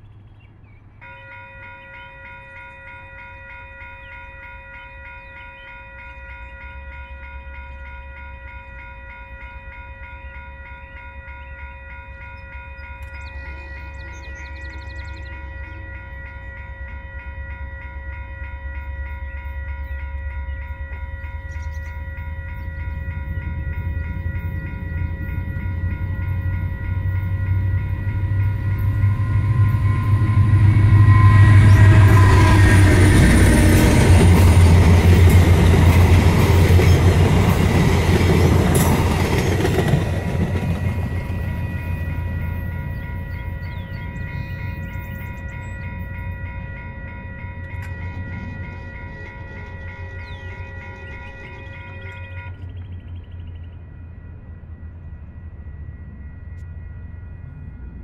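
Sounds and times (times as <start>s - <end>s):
diesel locomotive engine rumble: 0.0s - 58.0s
level-crossing bell ringing: 1.0s - 58.0s
train wheel noise: 1.0s - 58.0s.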